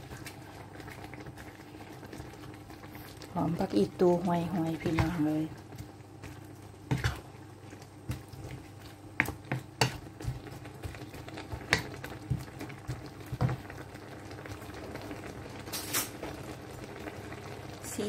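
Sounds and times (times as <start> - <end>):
broth simmering: 0.0 - 18.0
wooden spatula scraping a wok: 6.2 - 7.4, 8.1 - 13.6.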